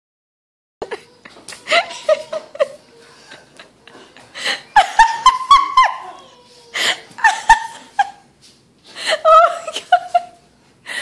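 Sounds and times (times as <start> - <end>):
people laughing: 0.8 - 6.2, 7.1 - 8.3, 9.1 - 10.4.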